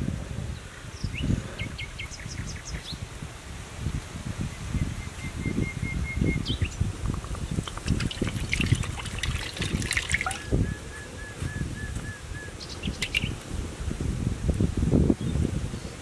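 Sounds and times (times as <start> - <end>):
water trickling into a wok: 7.7 - 10.4.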